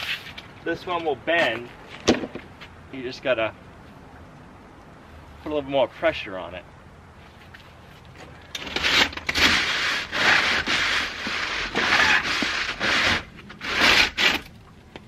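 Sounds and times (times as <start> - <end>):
chimney brush scraping metal pipe: 8.6 - 14.5.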